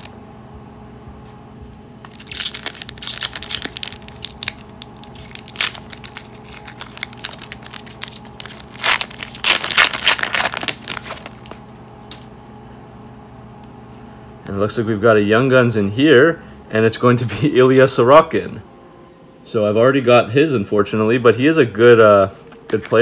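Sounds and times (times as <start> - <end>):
foil wrapper crinkling and tearing: 2.0 - 11.6.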